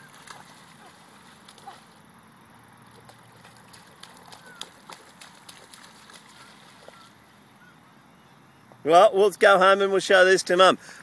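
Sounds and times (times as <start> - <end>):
feet splashing in shallow water: 0.0 - 7.4.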